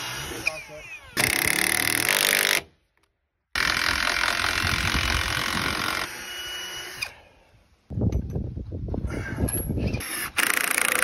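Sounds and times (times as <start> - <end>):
cordless drill driving a screw: 3.6 - 7.2.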